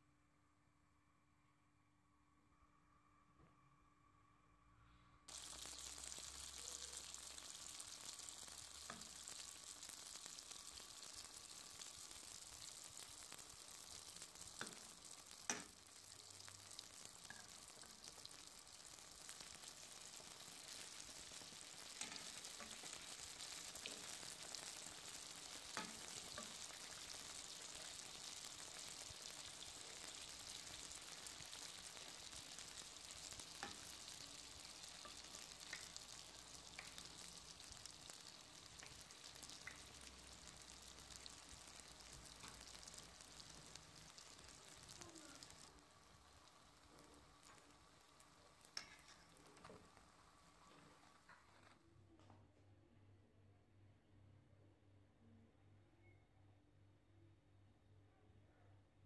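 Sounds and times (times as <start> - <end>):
hot oil sizzling: 5.3 - 51.7.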